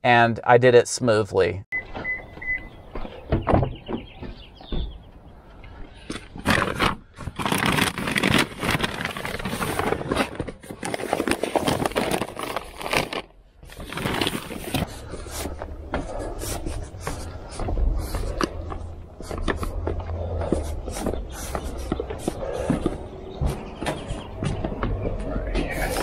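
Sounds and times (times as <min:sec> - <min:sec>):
footsteps on concrete stairs: 0:02.0 - 0:06.4, 0:14.8 - 0:26.0
paper bags rustling: 0:06.1 - 0:24.5, 0:25.3 - 0:26.0.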